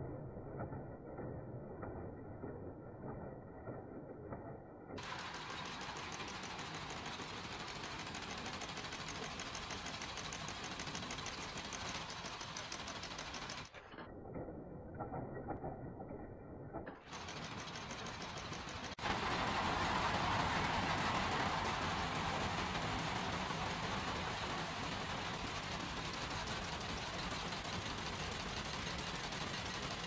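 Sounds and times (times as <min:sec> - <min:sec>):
nail-making machine clattering: 0:05.0 - 0:13.9, 0:17.0 - 0:30.0.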